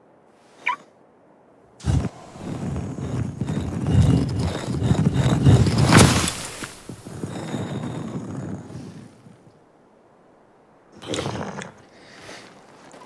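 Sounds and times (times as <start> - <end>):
stone grinding and rumbling: 1.8 - 9.4.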